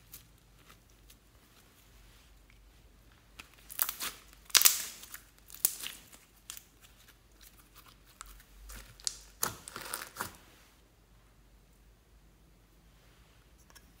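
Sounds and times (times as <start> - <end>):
slime crackling and popping: 3.4 - 10.4.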